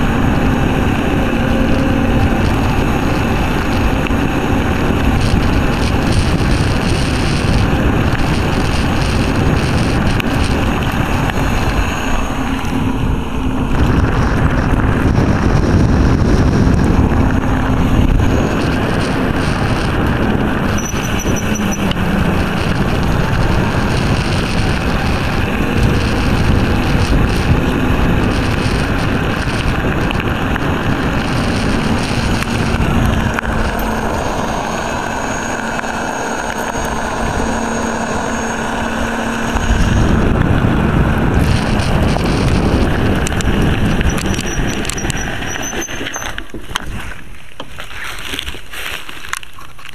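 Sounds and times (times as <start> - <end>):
tyres rumbling on gravel: 0.0 - 49.9
wind buffeting microphone: 0.0 - 49.9.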